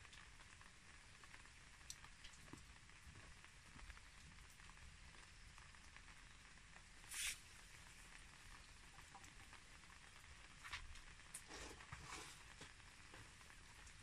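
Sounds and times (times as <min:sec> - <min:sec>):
brushing rustle: 0:07.1 - 0:07.4.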